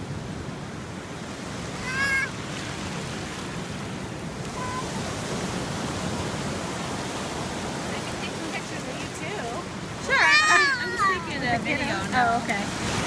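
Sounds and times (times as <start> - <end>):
surf washing onto beach: 0.0 - 13.0.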